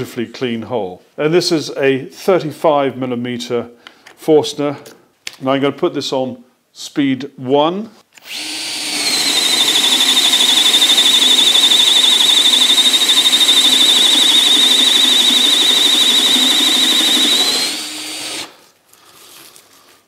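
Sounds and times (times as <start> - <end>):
cordless drill whining: 8.2 - 18.6.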